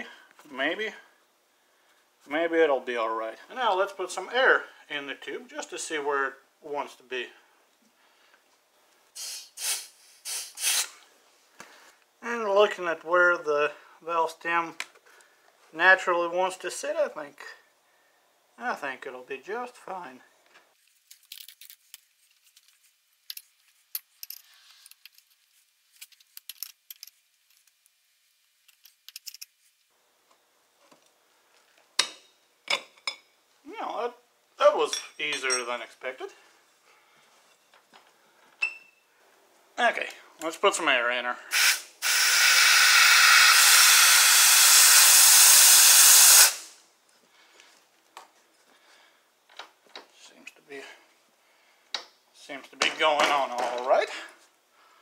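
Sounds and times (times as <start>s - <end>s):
compressed air hissing: 9.2s - 11.0s, 41.4s - 46.8s.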